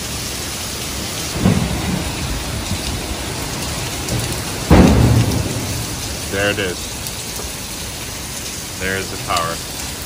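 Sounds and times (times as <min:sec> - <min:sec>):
heavy rain pouring: 0:00.0 - 0:10.0
dull low thud: 0:04.1 - 0:06.1
loud deep boom: 0:04.6 - 0:05.9.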